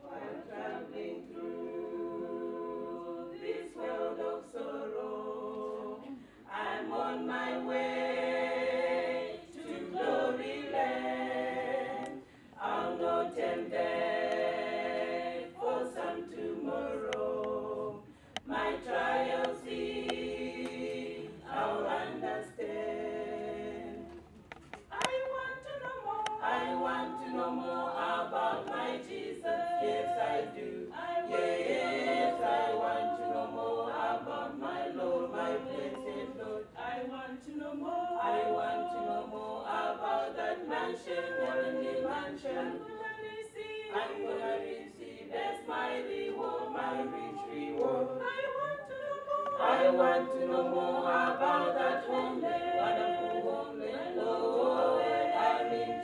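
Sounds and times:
group singing a cappella hymn: 0.0 - 56.0.

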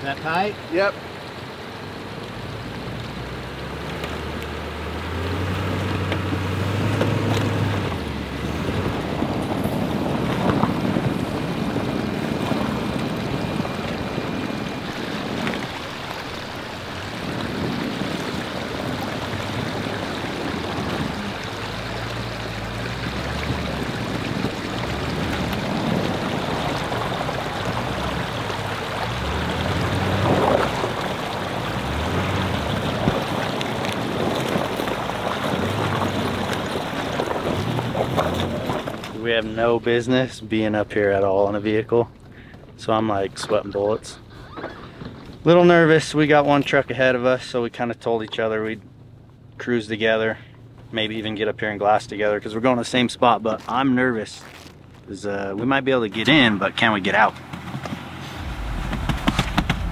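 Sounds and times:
truck engine and tyre noise: 0.0 - 59.9
knocks and jolts: 57.5 - 59.9.

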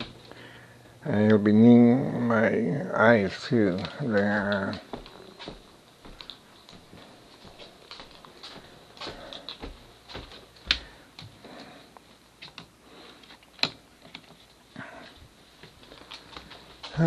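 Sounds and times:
footsteps on wooden floor: 4.2 - 11.5.

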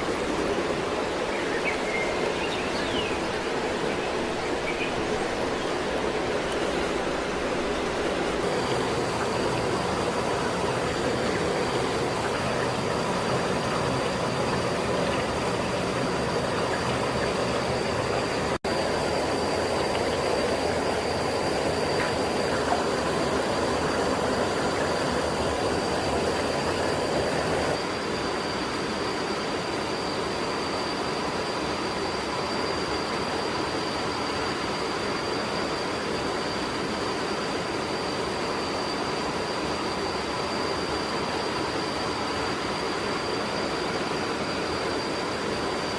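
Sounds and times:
stream flowing over rocks: 0.0 - 27.8.

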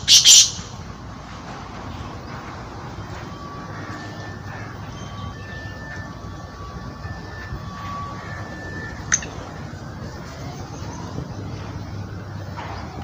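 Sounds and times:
thin whistle-like tones: 3.2 - 11.3.

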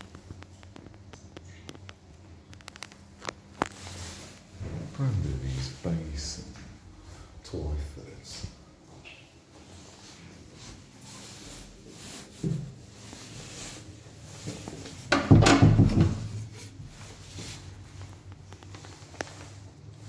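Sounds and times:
knock on door: 15.1 - 16.3
door thud and rattle: 15.1 - 16.4.

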